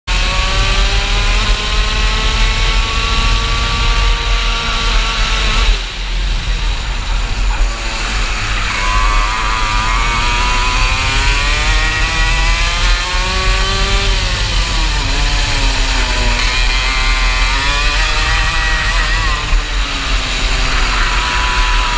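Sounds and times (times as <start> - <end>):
two-stroke kart engine revving: 0.1 - 21.9
low rumble: 5.0 - 17.4.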